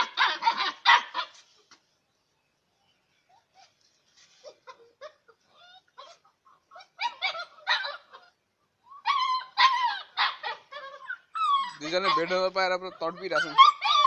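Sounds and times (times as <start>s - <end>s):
puppies barking: 0.0s - 1.4s, 4.6s - 14.0s
puppies yipping: 0.0s - 1.5s, 3.3s - 14.0s.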